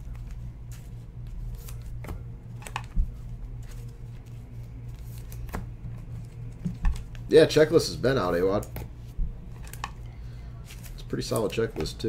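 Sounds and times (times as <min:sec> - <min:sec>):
steady low hum: 0:00.0 - 0:12.0
cards and foil wrapper rustling: 0:10.6 - 0:11.7.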